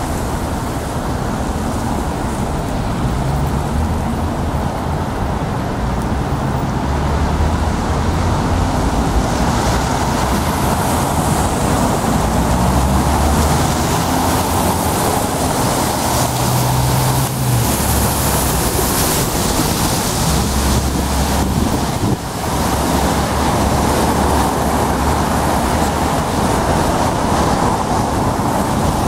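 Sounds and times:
passing vehicles humming: 0:00.0 - 0:29.0
tyres hissing on wet road: 0:00.0 - 0:29.0
wind on microphone: 0:00.0 - 0:29.0.

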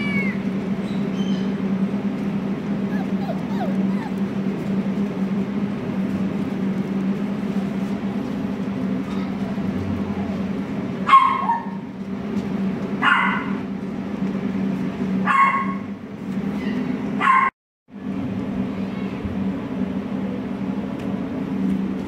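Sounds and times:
steady low hum: 0:00.0 - 0:17.2
puppy barking: 0:02.9 - 0:04.3, 0:11.1 - 0:11.8, 0:13.0 - 0:13.6, 0:15.2 - 0:15.8, 0:17.2 - 0:17.5.

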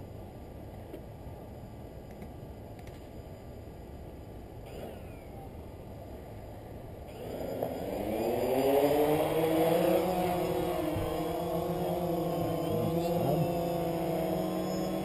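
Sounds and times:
drone propellers buzzing: 0:07.1 - 0:15.0.

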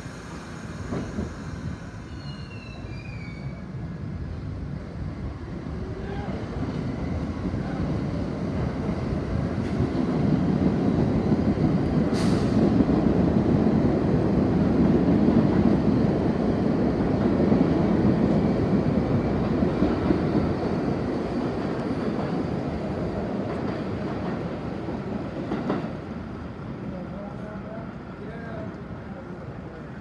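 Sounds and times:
sharp hiss: 0:00.0 - 0:03.5, 0:12.1 - 0:12.8
subway wheels rumbling on track: 0:00.0 - 0:30.0.

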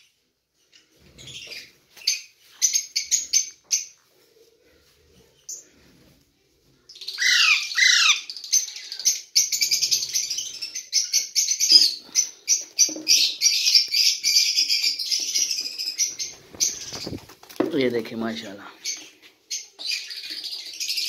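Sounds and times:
parakeet chicks squawking: 0:06.9 - 0:17.3
harsh repeated parakeet calls: 0:07.0 - 0:17.2.

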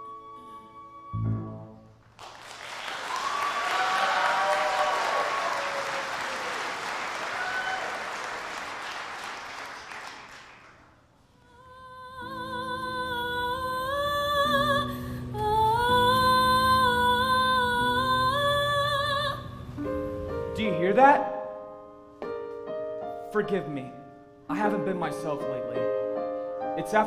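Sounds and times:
soft slow music: 0:00.0 - 0:02.1, 0:11.4 - 0:27.0
audience applauding: 0:02.0 - 0:11.0.

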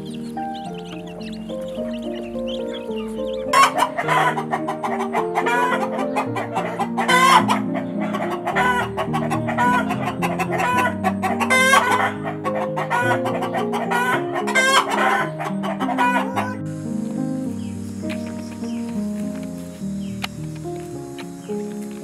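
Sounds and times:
background music melody: 0:00.0 - 0:22.0
chickens clucking: 0:00.0 - 0:22.0
chicken drawn-out calls: 0:00.1 - 0:16.8.

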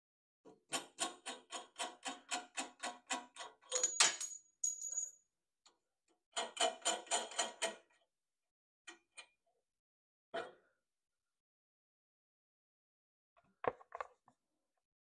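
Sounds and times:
clatter with metallic ring: 0:03.7 - 0:05.2.

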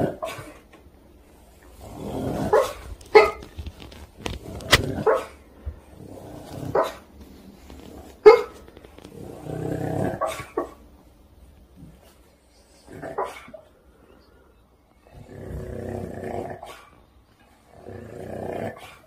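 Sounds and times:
dog muffled woofs: 0:02.0 - 0:05.4, 0:06.0 - 0:10.8.

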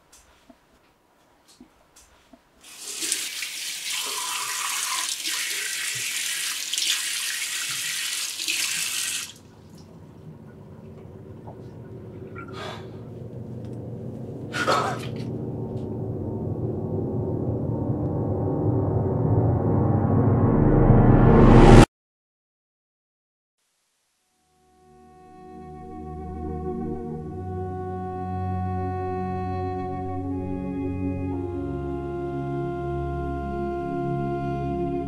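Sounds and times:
tap water running into sink: 0:02.6 - 0:11.8
droning horror music: 0:10.1 - 0:21.8.

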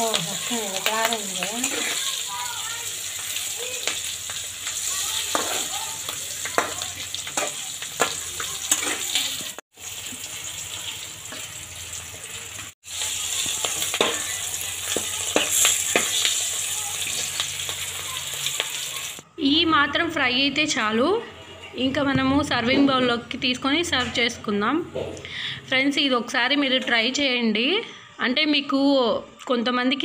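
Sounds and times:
chillies frying in hot oil: 0:00.0 - 0:19.2
spatula scraping a pan: 0:00.1 - 0:09.5, 0:13.4 - 0:17.4.

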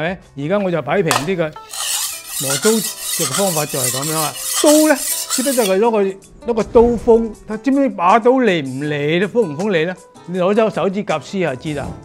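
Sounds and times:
knife scraping on whetstone: 0:01.1 - 0:05.9.

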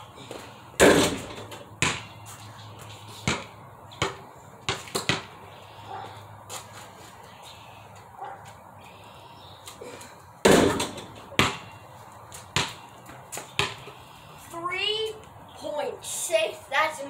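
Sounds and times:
basketball bouncing: 0:00.3 - 0:02.3, 0:03.2 - 0:05.4, 0:10.4 - 0:14.0.

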